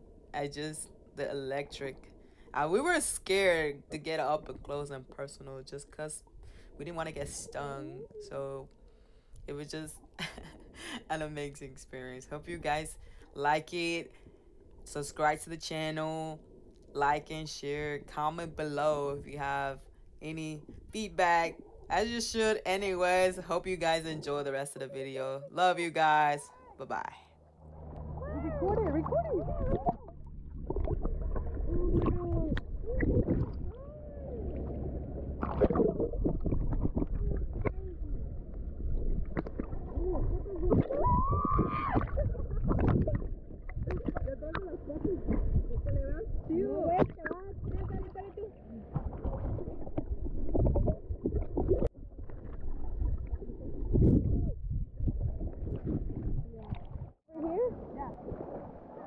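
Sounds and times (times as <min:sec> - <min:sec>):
water gurgling and bubbling: 0:27.4 - 0:59.0
water splashes: 0:27.4 - 0:59.0.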